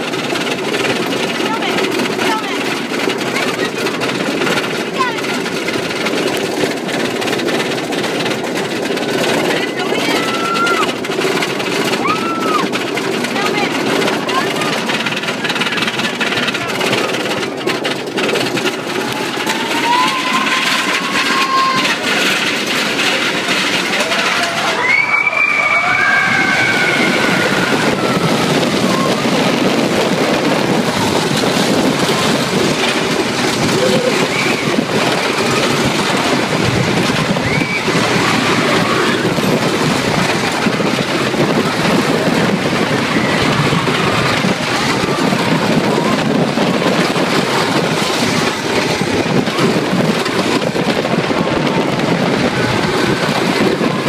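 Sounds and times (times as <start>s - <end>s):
roller coaster rumbling and rattling: 0.0s - 54.0s
riders shrieking: 9.2s - 11.0s, 11.8s - 12.8s, 19.0s - 22.4s, 23.9s - 46.4s.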